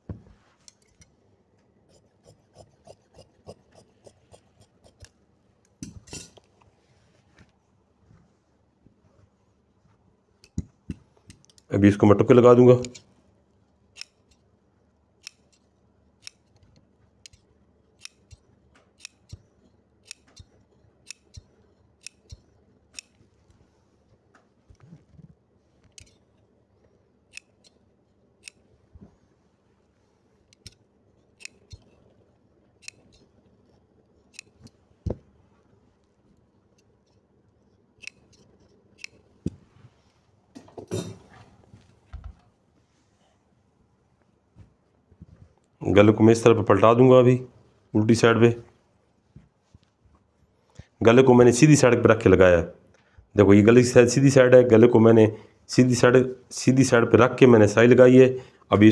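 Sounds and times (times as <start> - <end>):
faint scissors snipping: 20.0 - 23.2, 30.5 - 30.8, 32.8 - 33.3, 34.2 - 34.8, 38.0 - 39.2.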